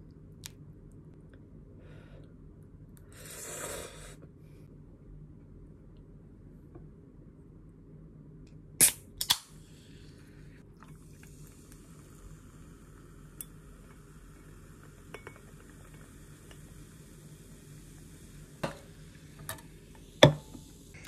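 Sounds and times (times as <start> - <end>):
can popping open: 8.8 - 9.5
cola fizzing over ice: 10.7 - 20.8.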